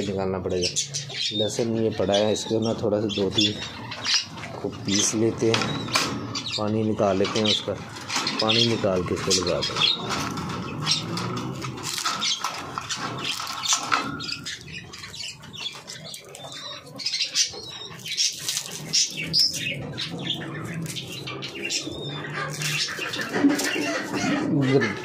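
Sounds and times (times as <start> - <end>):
birds chirping and squawking: 0.0 - 25.0
wings flapping: 18.0 - 19.7.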